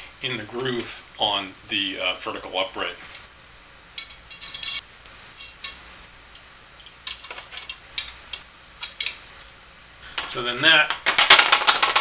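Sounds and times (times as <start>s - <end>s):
metal hardware clinking: 4.0s - 4.8s, 5.4s - 9.2s.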